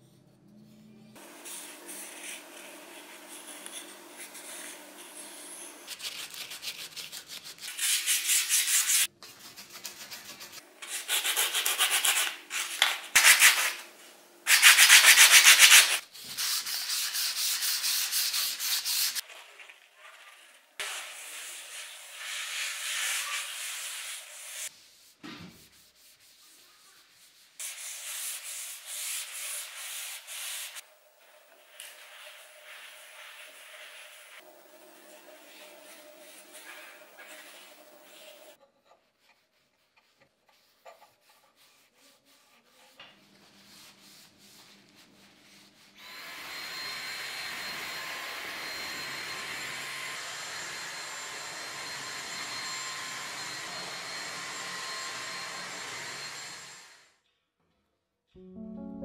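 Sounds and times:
sandpaper rubbing wood: 1.4 - 13.8, 14.5 - 19.2, 20.8 - 30.8, 31.7 - 34.4, 39.2 - 45.9.

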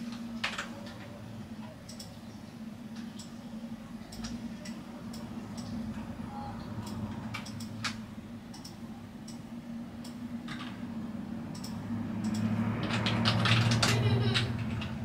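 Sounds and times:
steady low hum: 0.0 - 15.0
computer mouse clicks: 1.8 - 2.2, 6.8 - 9.4, 11.5 - 14.0.

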